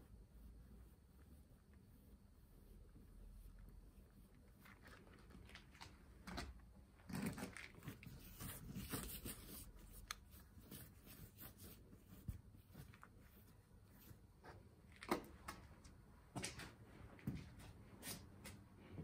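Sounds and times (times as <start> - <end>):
paintbrush scrubbing canvas: 0.0 - 5.6, 7.5 - 14.6.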